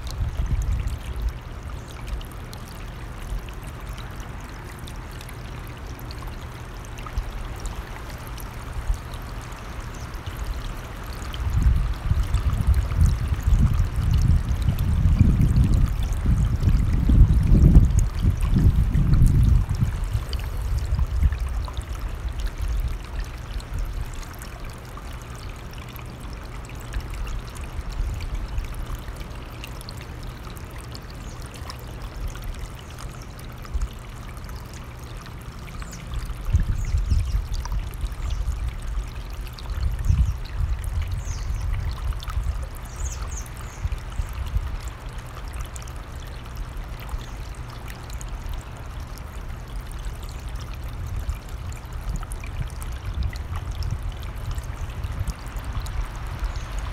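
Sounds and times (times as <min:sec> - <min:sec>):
wind buffeting microphone: 0:00.0 - 0:01.3, 0:11.3 - 0:23.0, 0:36.4 - 0:38.8, 0:39.6 - 0:42.7, 0:51.0 - 0:56.9
stream water rushing: 0:00.0 - 0:56.9.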